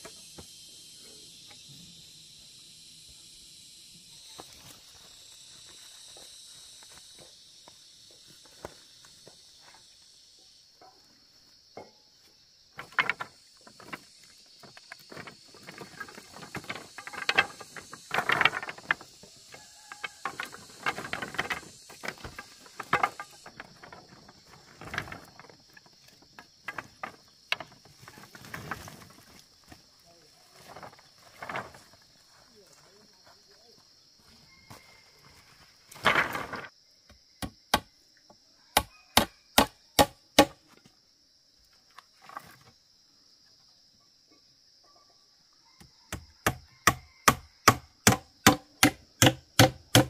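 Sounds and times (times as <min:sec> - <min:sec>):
high insect drone: 0:00.0 - 0:50.0
bamboo poles clattering: 0:11.8 - 0:32.2, 0:35.9 - 0:36.7, 0:39.2 - 0:40.8, 0:46.4 - 0:50.0.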